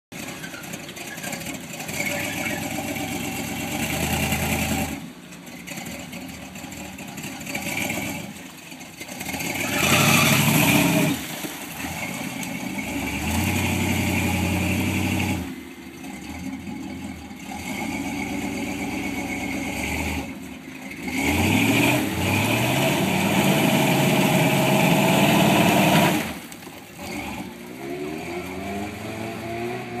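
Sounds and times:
truck engine revving: 0.1s - 30.0s.

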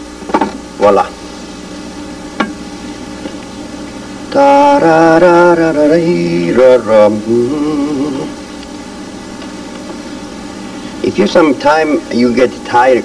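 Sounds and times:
man singing wordless tune: 4.3s - 8.4s.

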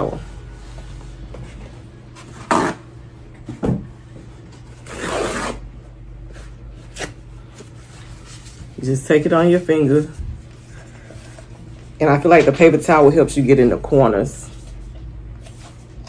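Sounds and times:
paper towel tearing: 2.4s - 2.9s, 4.8s - 5.7s.

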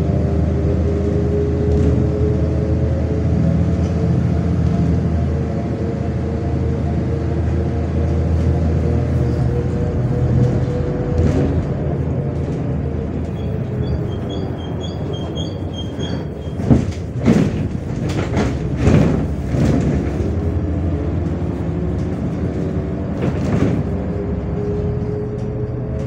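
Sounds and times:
bus engine running: 0.0s - 26.0s
knocks and rattles: 10.3s - 26.0s.

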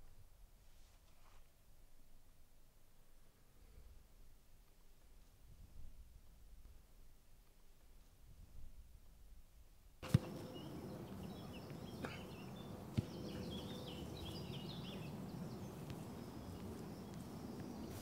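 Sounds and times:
football kicked on grass: 10.0s - 10.8s, 12.9s - 14.4s, 15.7s - 18.0s
birds chirping: 10.0s - 18.0s.

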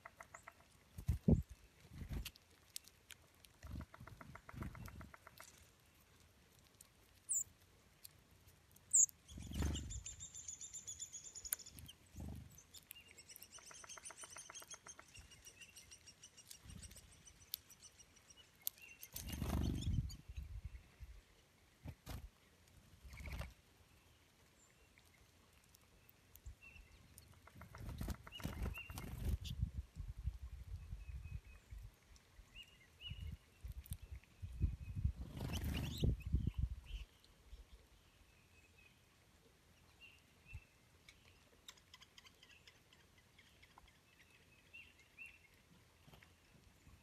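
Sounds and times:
songbirds chirping: 0.0s - 47.0s
bird wings fluttering: 19.1s - 20.0s, 23.1s - 23.6s, 27.6s - 29.6s, 35.2s - 36.1s.

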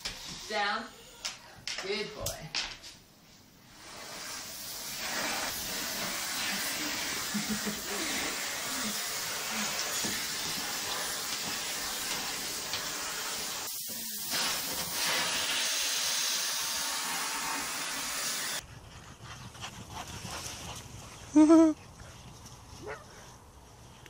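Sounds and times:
vacuum cleaner running: 4.7s - 18.6s.

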